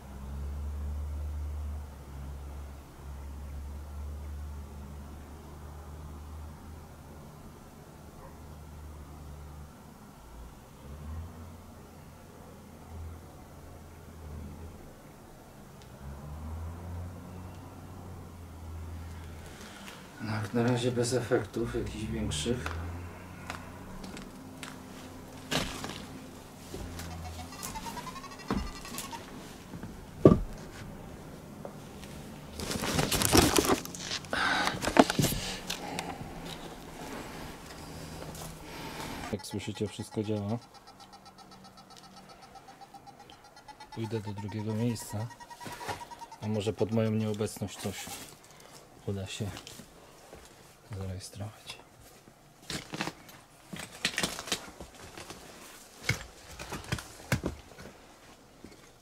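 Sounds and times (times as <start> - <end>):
footsteps through undergrowth: 24.0 - 29.7, 31.7 - 34.3.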